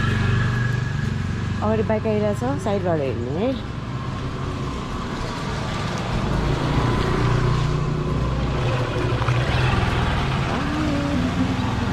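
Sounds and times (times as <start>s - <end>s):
small motorcycle engine running: 8.0s - 11.9s.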